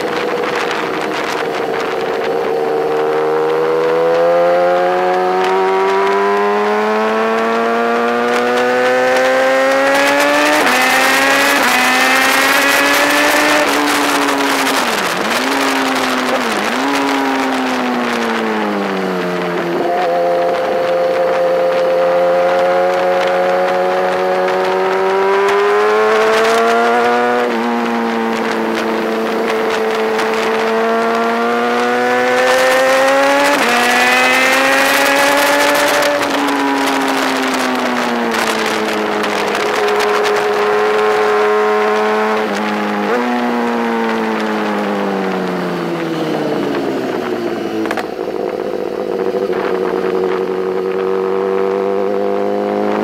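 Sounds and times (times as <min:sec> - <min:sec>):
motorcycle engine revving: 0:00.0 - 0:53.0.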